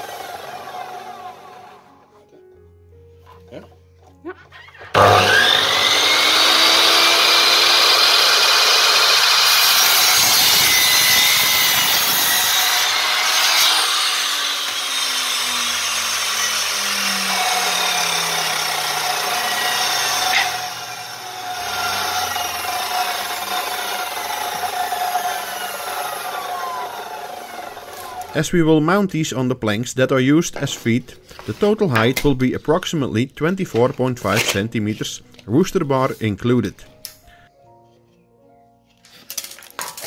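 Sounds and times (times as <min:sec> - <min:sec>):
mitre saw cutting wood: 0:00.0 - 0:02.0, 0:04.5 - 0:28.4.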